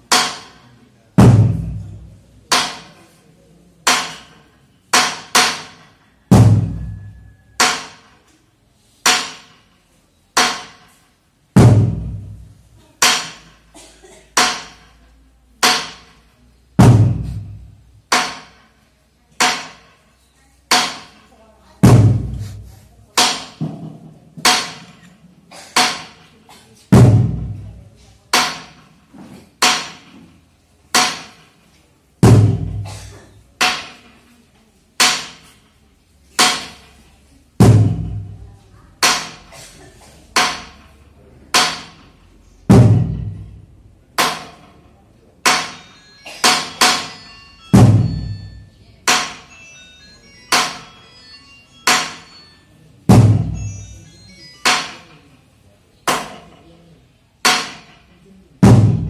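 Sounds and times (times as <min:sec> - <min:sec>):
slow drum and percussion beat: 0:01.2 - 0:02.7, 0:05.0 - 0:08.1, 0:11.6 - 0:14.8, 0:16.8 - 0:18.5, 0:21.8 - 0:23.7, 0:26.9 - 0:27.8, 0:32.2 - 0:33.4, 0:42.6 - 0:43.6, 0:45.5 - 0:49.7, 0:53.0 - 0:55.0, 0:58.6 - 0:59.0.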